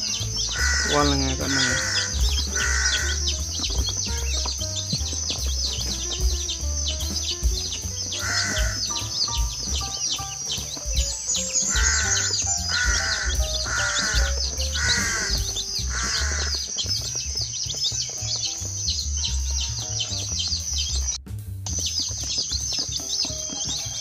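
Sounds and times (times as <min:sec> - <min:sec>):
harsh duckling calls: 0:00.0 - 0:18.5
background music: 0:00.0 - 0:24.0
ducklings peeping: 0:00.0 - 0:24.0.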